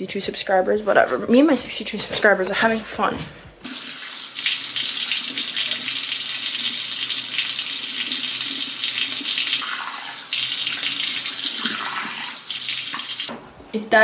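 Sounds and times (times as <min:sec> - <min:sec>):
water splashing from face washing: 0:03.6 - 0:13.3.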